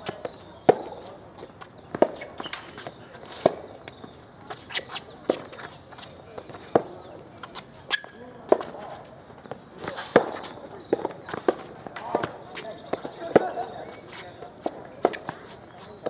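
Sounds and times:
shoes squeaking on hard court: 0.0 - 16.0
tennis ball popping off rackets: 1.9 - 3.6.

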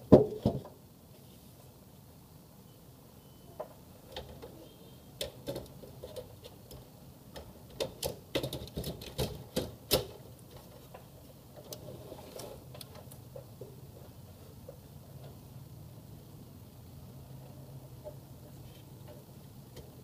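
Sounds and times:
small hard parts clicking: 5.2 - 12.0.

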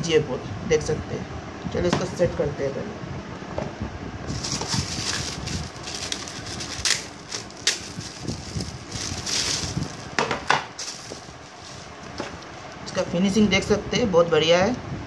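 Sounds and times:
plastic bag crinkling: 4.3 - 12.4.

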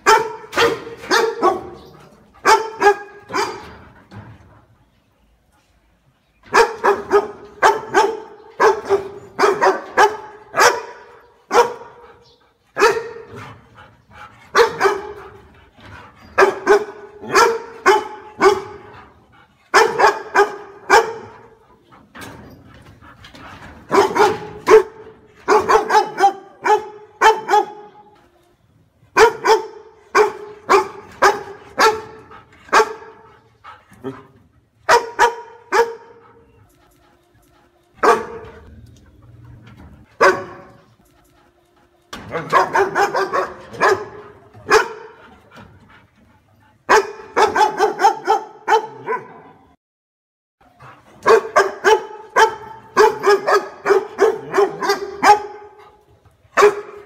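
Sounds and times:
dog barking: 0.0 - 3.8, 6.5 - 12.2, 12.8 - 13.4, 14.5 - 15.4, 16.4 - 18.9, 19.7 - 21.6, 23.9 - 28.0, 29.2 - 33.3, 34.0 - 36.4, 38.0 - 38.6, 40.1 - 40.8, 42.3 - 45.2, 46.9 - 49.5, 51.2 - 55.9, 56.6 - 57.0.

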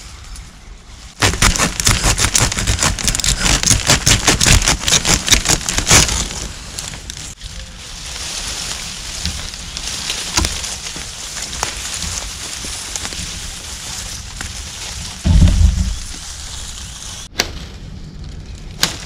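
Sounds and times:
rustle of bamboo canes: 0.0 - 19.0
saw cutting bamboo: 1.2 - 6.4.

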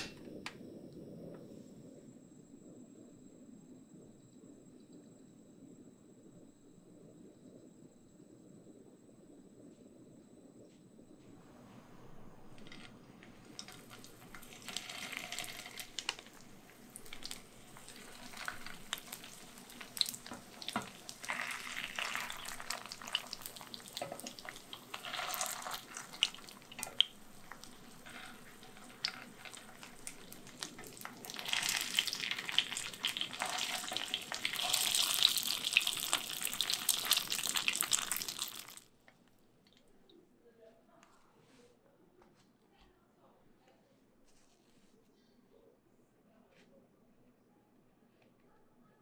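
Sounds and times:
food deep-frying in oil: 12.1 - 38.9.

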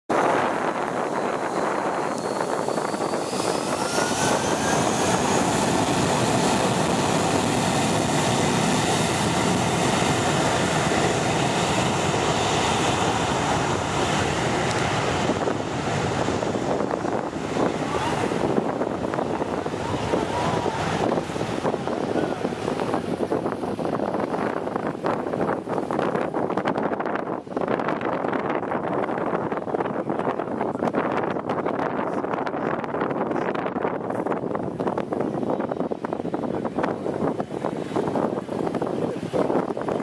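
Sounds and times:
wind buffeting microphone: 0.1 - 40.0
jet engines spooling up: 0.2 - 26.0.

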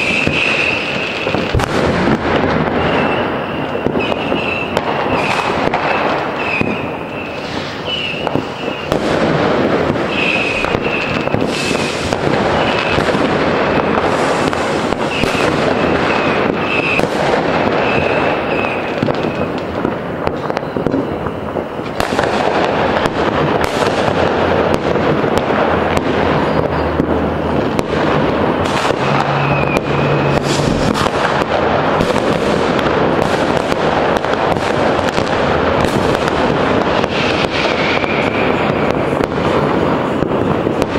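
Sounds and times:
firecracker bangs: 0.0 - 40.9
rocket bursts: 0.0 - 40.9
short high whistles: 6.4 - 8.9.

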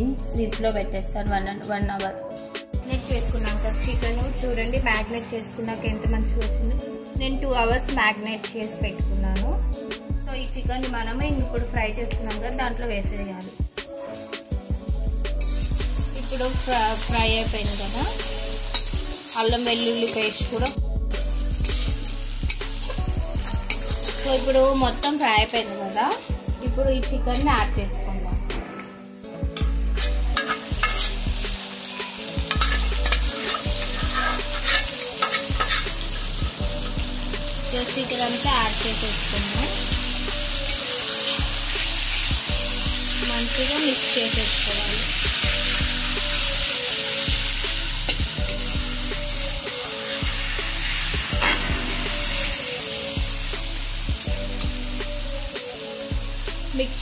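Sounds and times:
chicken sizzling in hot oil: 14.0 - 26.7, 29.2 - 57.0
utensils scraping pan: 28.6 - 31.3, 32.5 - 36.0.

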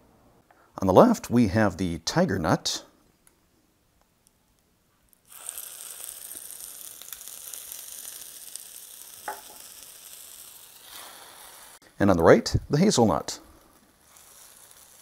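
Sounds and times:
batter sizzling on hot plate: 5.2 - 11.8, 12.9 - 15.0.

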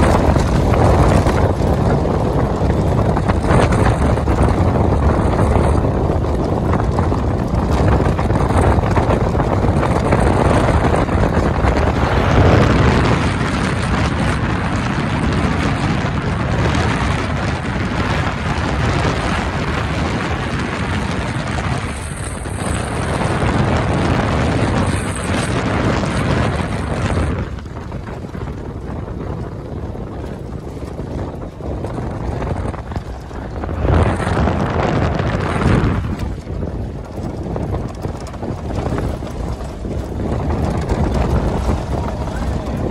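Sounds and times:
vehicle engine: 0.0 - 42.9
wind rushing over microphone: 0.0 - 42.9
tyres on gravel: 29.8 - 42.9.

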